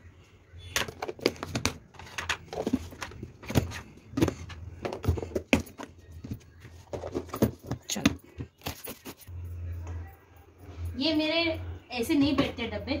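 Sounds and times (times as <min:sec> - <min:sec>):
plastic containers clicking and knocking: 0:00.7 - 0:08.7.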